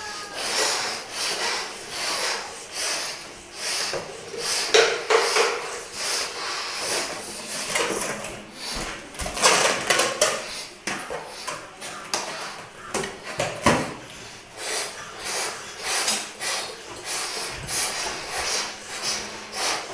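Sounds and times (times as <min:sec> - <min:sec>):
breathy puffs into balloons: 0:00.2 - 0:07.8, 0:14.1 - 0:19.9.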